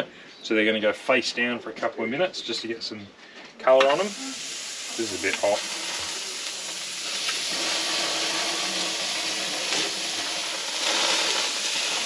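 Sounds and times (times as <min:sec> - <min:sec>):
crayfish sizzling on grill plate: 0:03.9 - 0:12.0.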